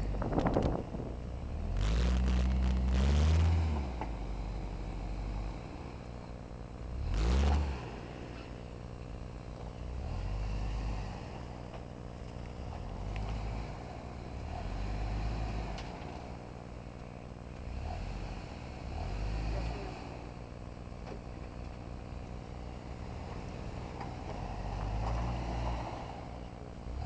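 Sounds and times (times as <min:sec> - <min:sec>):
engine revving: 0:01.4 - 0:06.0, 0:06.9 - 0:08.6, 0:09.8 - 0:11.6, 0:12.5 - 0:16.6, 0:17.6 - 0:20.4, 0:22.4 - 0:27.0.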